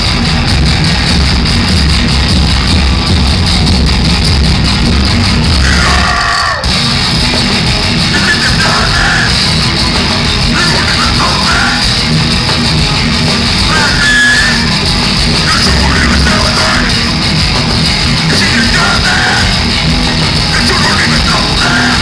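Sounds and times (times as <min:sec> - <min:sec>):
metal band playing live: 0:00.0 - 0:22.0
vocalist yelling: 0:05.6 - 0:06.7, 0:08.2 - 0:09.4, 0:10.6 - 0:11.9.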